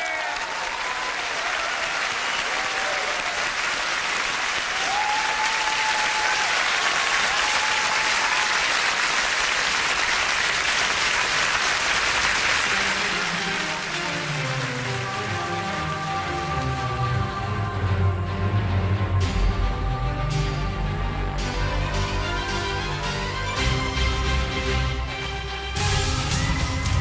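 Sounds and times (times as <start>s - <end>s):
audience applauding: 0.0s - 17.2s.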